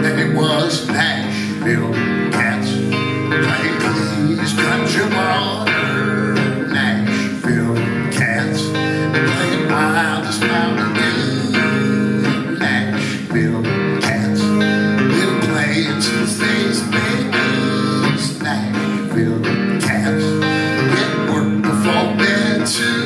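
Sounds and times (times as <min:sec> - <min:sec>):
guitar picking and strumming: 0:00.0 - 0:23.0.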